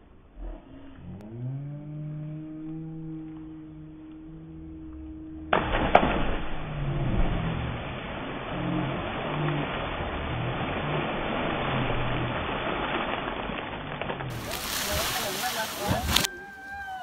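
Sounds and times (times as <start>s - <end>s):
engine hum: 0.0s - 16.3s
churning water rushing: 4.2s - 17.0s
person splashing into water: 5.5s - 16.3s.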